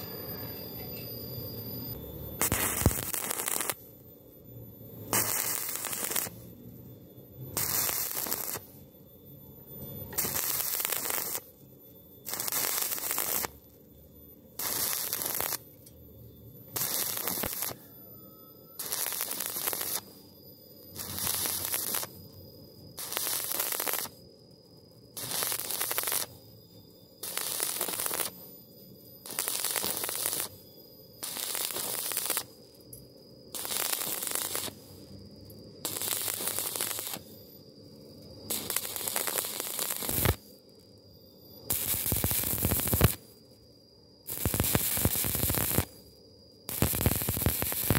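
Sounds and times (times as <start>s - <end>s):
welding arc crackling: 2.4s - 3.8s, 5.1s - 6.4s, 7.6s - 8.7s, 10.1s - 11.5s, 12.2s - 13.6s, 14.6s - 15.8s, 16.7s - 17.8s, 18.8s - 20.1s, 20.9s - 22.1s, 23.0s - 24.2s, 25.2s - 26.4s, 27.2s - 28.4s, 29.2s - 30.6s, 31.2s - 32.6s, 33.6s - 34.9s, 35.8s - 37.3s, 38.5s - 40.5s, 41.7s - 43.3s, 44.3s - 46.0s, 46.7s - 47.9s.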